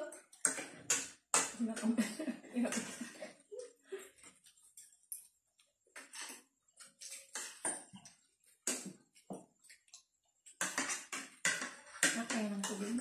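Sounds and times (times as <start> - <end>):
cutlery clicking on ceramic plates: 10.5 - 12.9.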